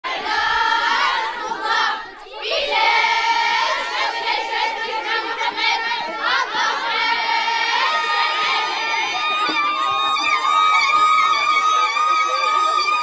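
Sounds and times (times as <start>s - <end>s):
women ululating: 7.7s - 13.0s.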